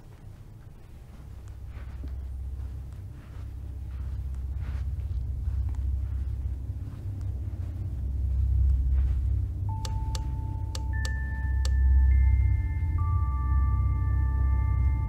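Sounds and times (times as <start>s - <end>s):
low steady drone: 0.0s - 15.0s
ringing bell-like notes: 8.3s - 15.0s
sharp ticks: 9.7s - 12.0s.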